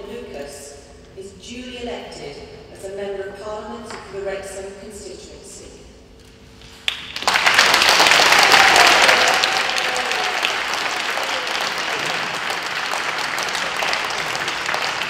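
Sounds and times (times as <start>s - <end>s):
crowd applauding: 6.7s - 15.0s.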